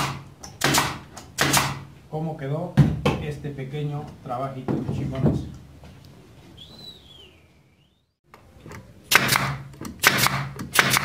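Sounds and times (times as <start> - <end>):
nail gun shots: 0.0 - 1.9, 9.1 - 11.0.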